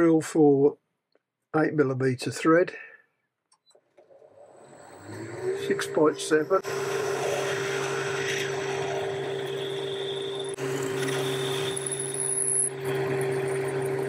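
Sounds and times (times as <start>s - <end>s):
metal lathe running: 4.4s - 14.0s
high whine from drilling: 4.5s - 14.0s.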